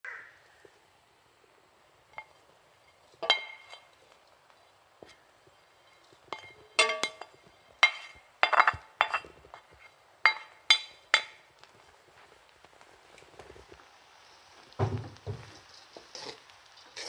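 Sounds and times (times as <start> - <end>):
plate and spatula clinking on pan: 2.9 - 3.9, 5.9 - 11.5.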